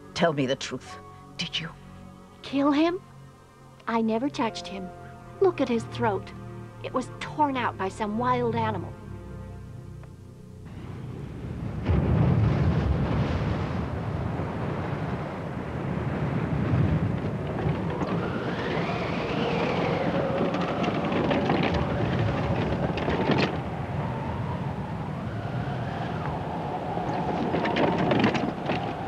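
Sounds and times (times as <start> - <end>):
low wind-like rumble: 0.0 - 29.0
whistling tone rising and falling: 17.9 - 22.6, 23.5 - 29.0.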